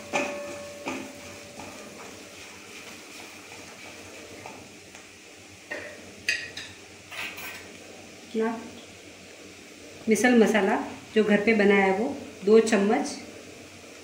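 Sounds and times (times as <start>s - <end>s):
spatula knocking against pan: 0.0s - 2.2s
faint steady sizzle: 0.0s - 14.0s
spatula stirring frying onions: 0.0s - 14.0s.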